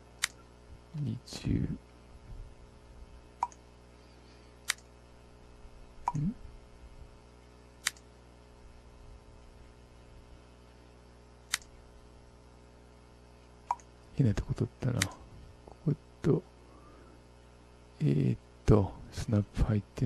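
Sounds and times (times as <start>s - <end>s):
faint steady hum: 0.0s - 20.0s
computer mouse clicks: 3.4s - 3.6s, 6.0s - 6.3s, 7.8s - 8.0s, 13.7s - 13.9s.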